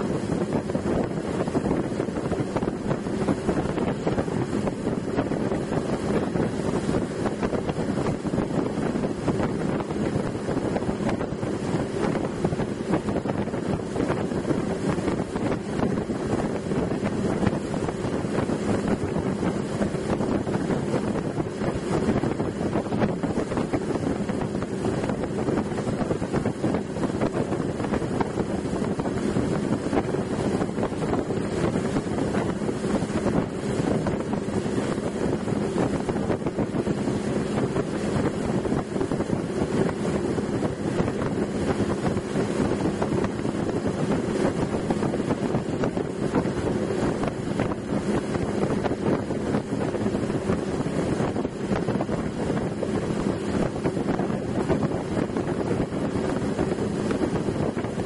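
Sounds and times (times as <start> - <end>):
motorboat engine droning: 0.0 - 58.0
wind buffeting microphone: 0.0 - 58.0.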